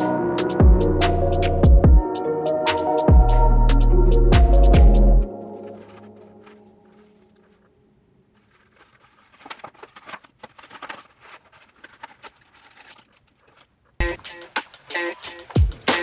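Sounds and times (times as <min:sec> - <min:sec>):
electronic music with heavy beat: 0:00.0 - 0:05.2, 0:14.0 - 0:16.0
packaging rustling: 0:05.2 - 0:14.0.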